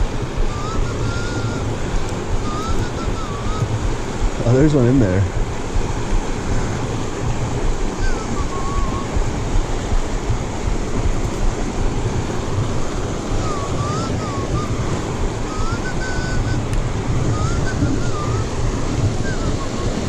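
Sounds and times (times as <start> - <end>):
river rushing over rocks: 0.0 - 20.0
wind on microphone: 0.0 - 20.0
person whistling: 0.4 - 1.7, 2.4 - 3.8, 8.0 - 9.2, 13.4 - 20.0.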